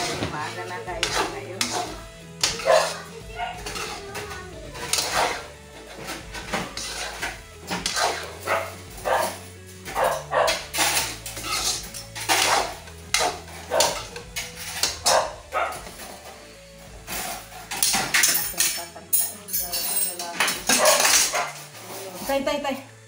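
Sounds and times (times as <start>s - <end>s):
faint music: 0.0s - 23.0s
dog barking: 2.6s - 3.6s, 8.4s - 9.4s, 10.0s - 10.6s, 13.7s - 14.0s, 15.0s - 15.9s, 20.7s - 21.6s.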